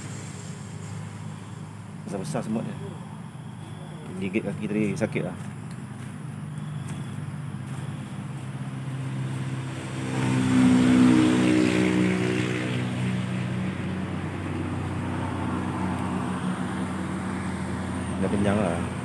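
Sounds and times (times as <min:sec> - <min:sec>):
low engine hum: 0:00.0 - 0:19.0
vehicle passing: 0:00.0 - 0:19.0.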